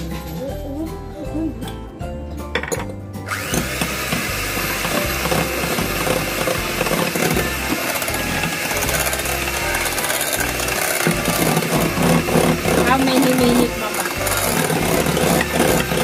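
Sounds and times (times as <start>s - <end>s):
electric hand mixer whirring: 3.2s - 16.0s
beaters whisking in a bowl: 3.3s - 16.0s.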